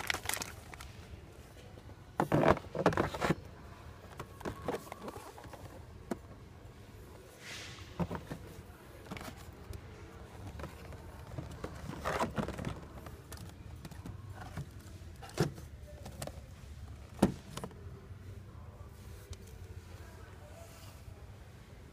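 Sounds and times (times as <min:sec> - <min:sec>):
plastic crinkle: 0:00.0 - 0:01.0
plastic packages clicking and knocking: 0:00.0 - 0:01.0, 0:10.4 - 0:17.7.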